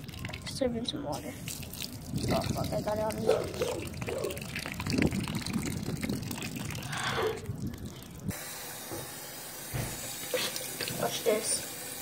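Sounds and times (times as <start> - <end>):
water pouring into metal bowl: 0.0 - 8.8.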